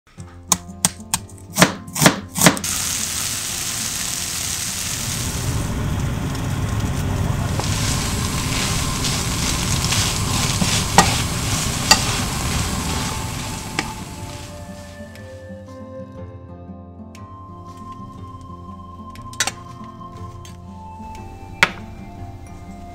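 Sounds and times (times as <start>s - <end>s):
knife chopping on cutting board: 0.5s - 2.6s
vegetables sizzling in oil: 2.6s - 15.2s.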